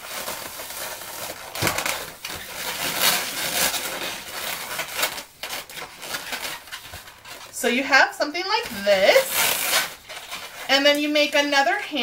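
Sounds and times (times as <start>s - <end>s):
balloons rubbing and squeaking: 0.0s - 11.0s.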